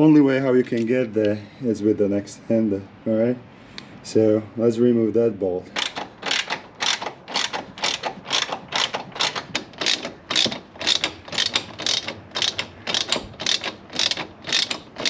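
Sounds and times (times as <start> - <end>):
ratchet wrench rasping: 5.7 - 15.0.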